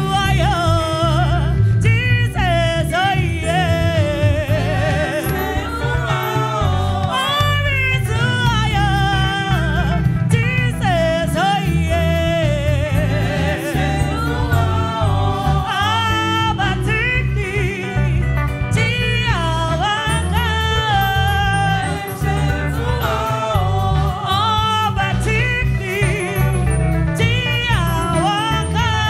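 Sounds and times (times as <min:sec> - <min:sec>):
amplified instrumental backing: 0:00.0 - 0:29.0
choir singing a gospel song: 0:02.4 - 0:29.0.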